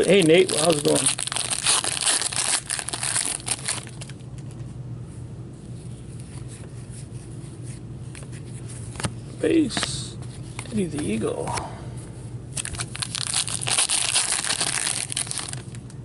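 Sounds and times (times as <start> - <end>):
plastic wrapper crinkling and tearing: 0.0 - 4.2, 12.6 - 15.9
low steady hum: 0.0 - 16.0.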